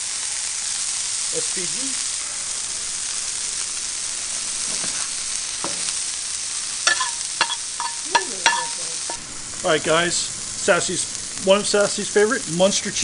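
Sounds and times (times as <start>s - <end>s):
meat sizzling on a griddle: 0.0s - 13.0s
sharp ringing clinks: 6.9s - 9.2s.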